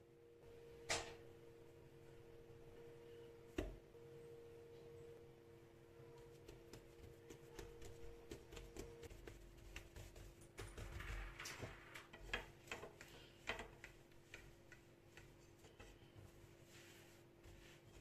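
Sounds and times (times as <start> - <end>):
hands pressing dough on countertop: 6.2 - 18.0.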